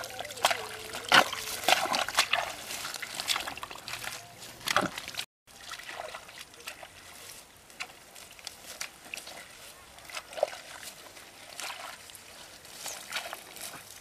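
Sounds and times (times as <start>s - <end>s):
hands squelching in wet mud: 0.0s - 14.0s.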